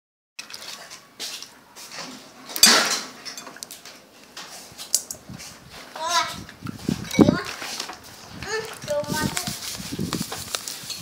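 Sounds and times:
wet squelches: 0.4 - 1.6.

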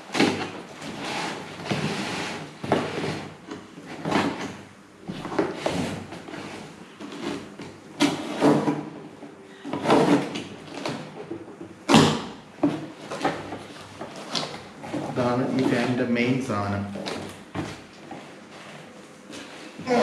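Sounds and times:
packaging scrapes rustles and knocks: 0.1 - 9.0.

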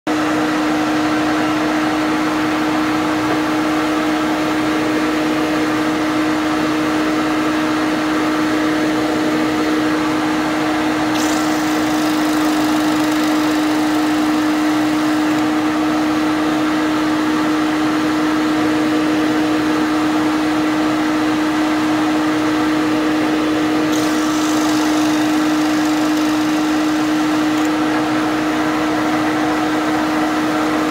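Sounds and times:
drill press motor humming: 9.4 - 17.7, 23.5 - 29.6
plug cutter cutting wood: 11.0 - 16.4, 23.7 - 28.4.

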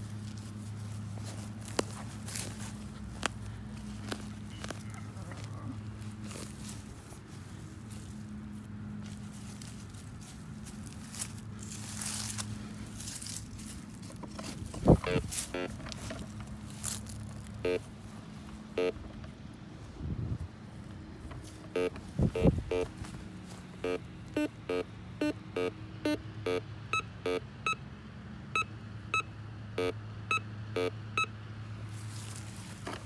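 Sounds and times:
metal detector beeping: 14.8 - 16.2, 17.6 - 17.9, 18.7 - 19.0, 21.7 - 22.9, 23.8 - 27.8, 28.6 - 31.3.

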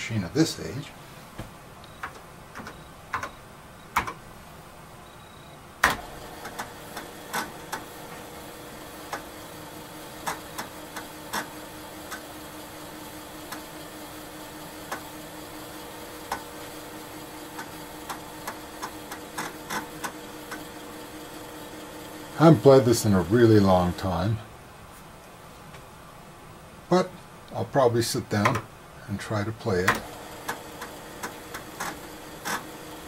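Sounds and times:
drive motor humming: 5.8 - 24.2, 29.7 - 33.0.

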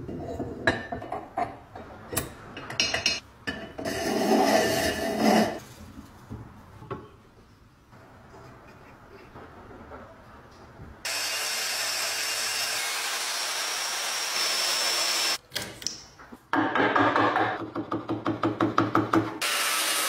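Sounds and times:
power saw whining: 11.1 - 15.4.

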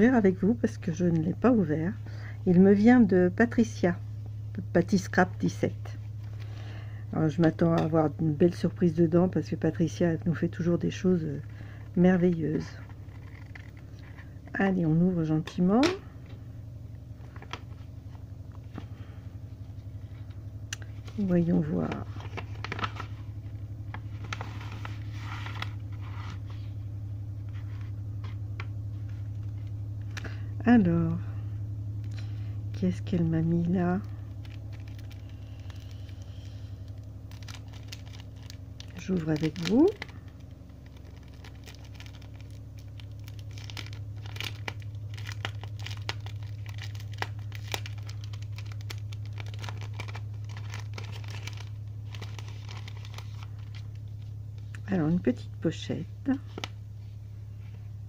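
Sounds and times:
low hum: 0.0 - 58.0
paper and cellophane rustling: 20.9 - 26.8, 33.8 - 54.7.

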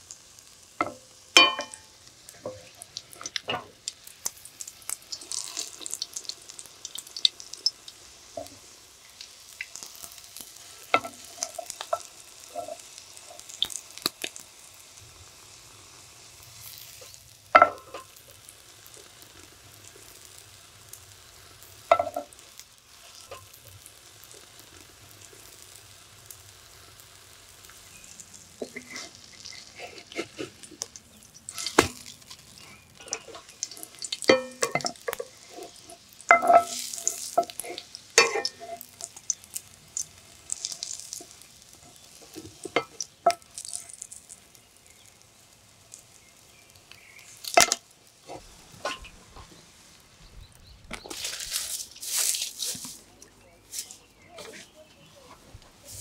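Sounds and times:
sandwich sizzling in oil: 0.0 - 54.5, 55.5 - 56.0
spatula knocking and scraping pan: 0.8 - 1.8, 17.6 - 18.1, 21.9 - 22.3, 28.6 - 30.7, 31.5 - 32.1, 33.0 - 38.9.

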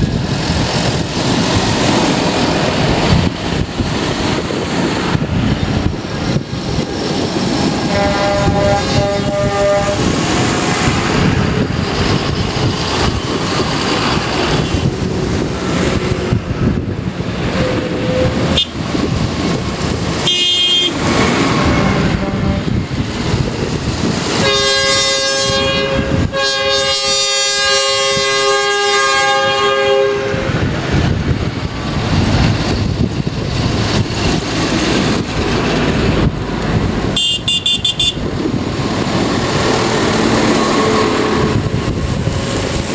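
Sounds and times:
tyre noise on road: 0.0 - 42.9
high-pitched horn blast: 7.8 - 10.1, 18.0 - 18.8, 20.2 - 21.0, 21.6 - 22.7, 24.4 - 30.6, 37.2 - 38.3
tractor horn: 7.9 - 10.0, 18.5 - 18.8, 20.2 - 21.0, 21.6 - 22.7, 24.4 - 30.5, 37.2 - 38.3.

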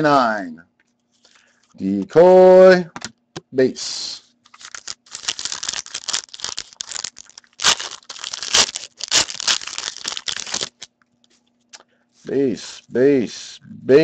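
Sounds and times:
foil wrapper tearing and crinkling: 4.5 - 10.9.

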